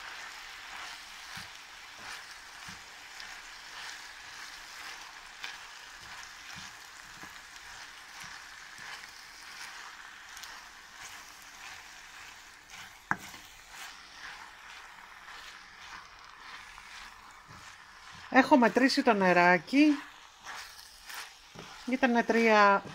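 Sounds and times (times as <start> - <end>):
food sizzling in hot oil: 0.0 - 22.9
wooden spoon scraping pan: 0.0 - 22.9
spoon knocking pan: 0.1 - 22.9.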